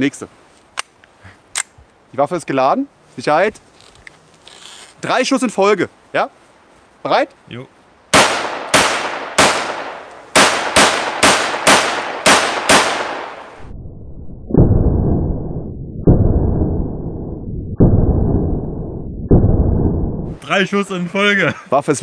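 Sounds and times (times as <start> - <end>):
pistol shots cracking: 8.1 - 13.5.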